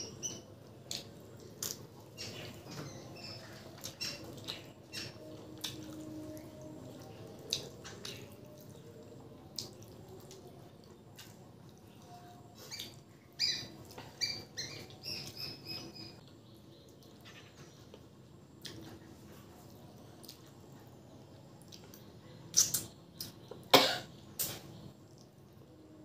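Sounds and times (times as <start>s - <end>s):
small bird chirping: 0.0s - 5.4s, 12.0s - 18.0s.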